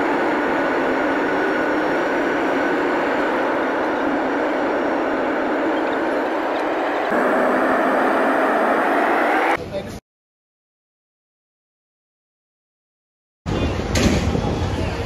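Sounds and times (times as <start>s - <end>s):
jet engines and rushing airflow: 0.0s - 9.8s.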